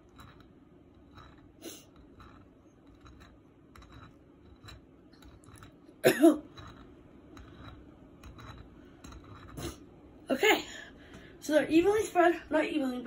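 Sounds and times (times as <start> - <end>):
butter knife scraping: 0.0 - 10.0
person coughing: 6.0 - 6.5.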